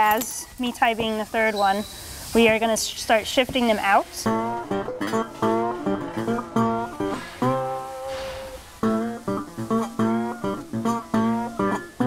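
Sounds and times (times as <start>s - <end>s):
plucked acoustic guitar music: 4.2s - 12.0s.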